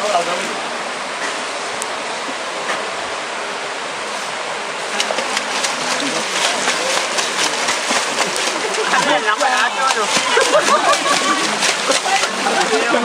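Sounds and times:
stream rushing: 0.0 - 13.0
swimmer splashing: 0.0 - 13.0.

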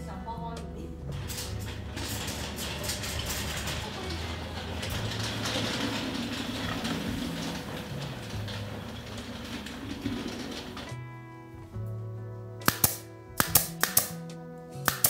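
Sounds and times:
low rumble: 0.4 - 12.5
metal racks rattling: 1.0 - 11.8.

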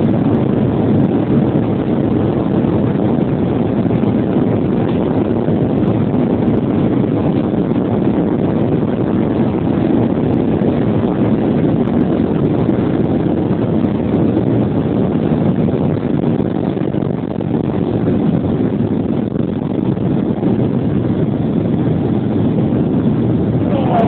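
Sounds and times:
jet engines rumbling: 0.0 - 24.0
wheels running over runway: 0.0 - 24.0.

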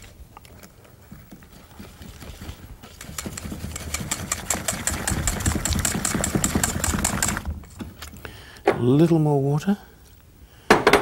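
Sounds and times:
whisk beating batter in a bowl: 1.5 - 7.4.

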